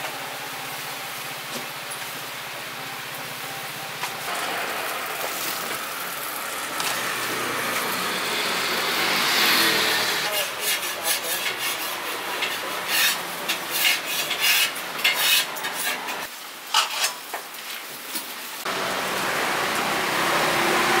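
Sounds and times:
oil sizzling: 0:03.7 - 0:10.3
metal utensils scraping in a wok: 0:07.6 - 0:17.3.

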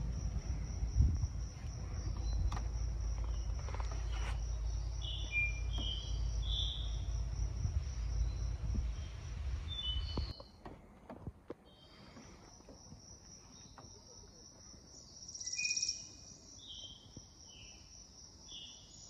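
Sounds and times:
low rumble: 0:00.0 - 0:10.3
insects trilling: 0:00.0 - 0:10.4
bird chirps: 0:02.0 - 0:02.6, 0:03.2 - 0:07.2, 0:08.0 - 0:10.6, 0:15.0 - 0:17.9.

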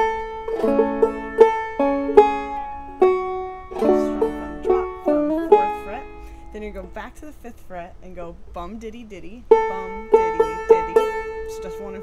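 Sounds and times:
banjo plucked and strummed: 0:00.0 - 0:12.0.

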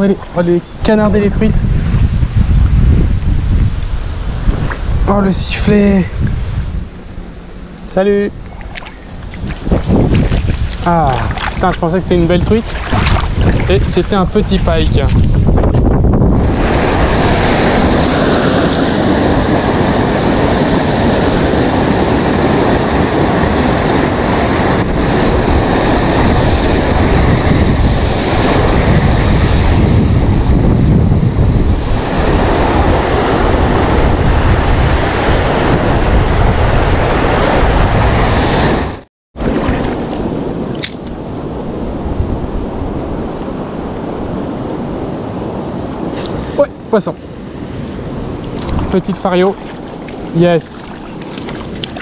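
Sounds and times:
wind buffeting microphone: 0:00.0 - 0:52.0
river water rushing: 0:45.8 - 0:52.0.

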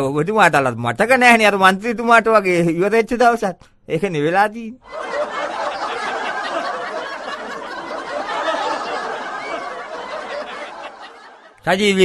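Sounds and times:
people laughing: 0:04.8 - 0:11.6.

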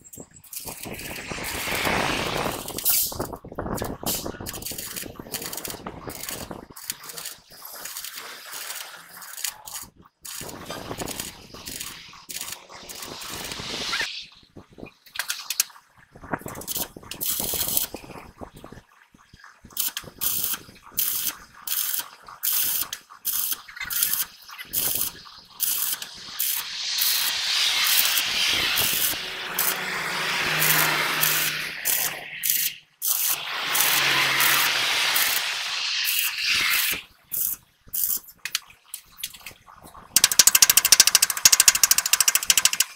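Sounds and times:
welding arc crackling: 0:00.5 - 0:03.2, 0:03.8 - 0:14.1, 0:19.8 - 0:38.2, 0:40.2 - 0:42.9.

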